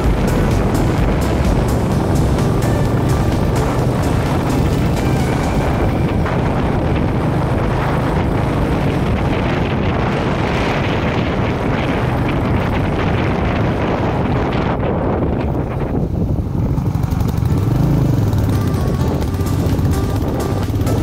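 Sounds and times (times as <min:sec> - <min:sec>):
motorcycle engine running: 0:00.0 - 0:21.0
wind buffeting microphone: 0:00.0 - 0:21.0.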